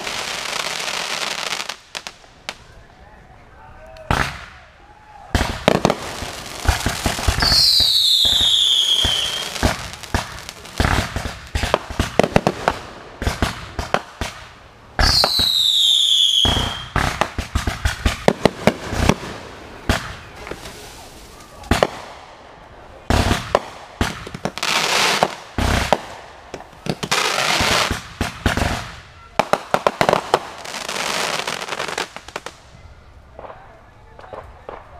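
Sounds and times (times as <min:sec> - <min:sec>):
fireworks bangs and crackles: 0:00.0 - 0:02.8, 0:04.1 - 0:04.7, 0:05.3 - 0:34.9
falling firework whistles: 0:06.7 - 0:10.0, 0:15.0 - 0:18.3.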